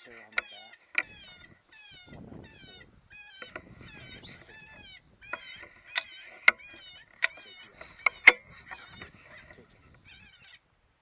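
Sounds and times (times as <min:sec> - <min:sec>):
electronic predator call cries: 0:00.0 - 0:10.7
sharp loud clicks: 0:05.3 - 0:09.1.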